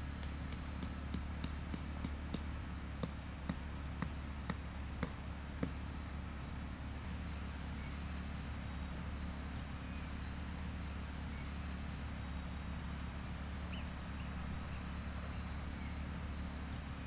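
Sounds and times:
steady low hum: 0.0 - 17.0
sharp clicks: 0.1 - 5.8.

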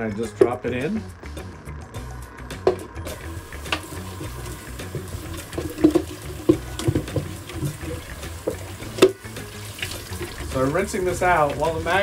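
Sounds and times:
tap running into steel sink: 2.6 - 10.6.

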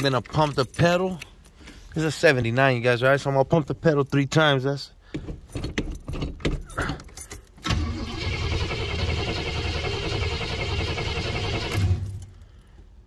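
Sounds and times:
car engine cranking on starter: 7.6 - 12.4.

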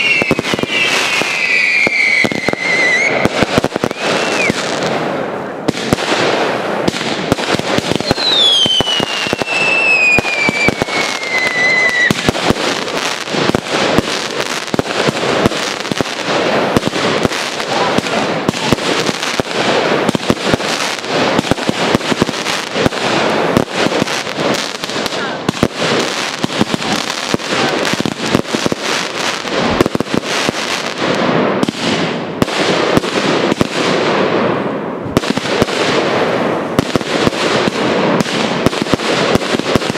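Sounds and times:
falling firework whistle: 0.0 - 4.9, 8.0 - 12.4
firework shells bursting and crackling: 0.0 - 39.9.

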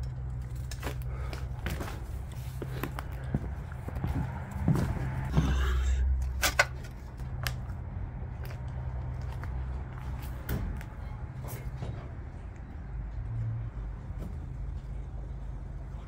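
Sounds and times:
footsteps crunching on debris: 0.7 - 5.9.

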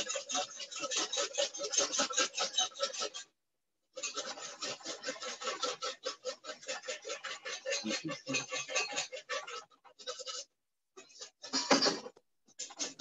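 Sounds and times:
whisk scraping metal bowl: 0.0 - 13.0.

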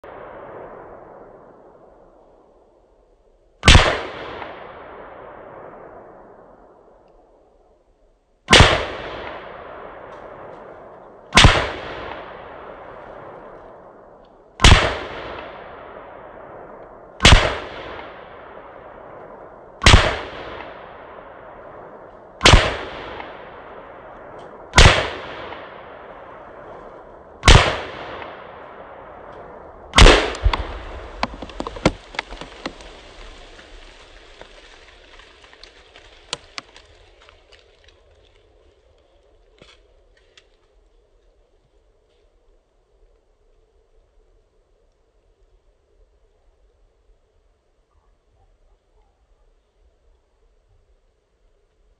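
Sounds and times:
gunshots with echo: 3.6 - 6.2, 8.5 - 10.4, 11.3 - 13.5, 14.6 - 16.4, 17.2 - 19.1, 19.8 - 21.8, 22.4 - 26.8, 27.4 - 32.4
scattered small pops and clatter: 29.3 - 40.8
explosive blast: 29.9 - 33.9.

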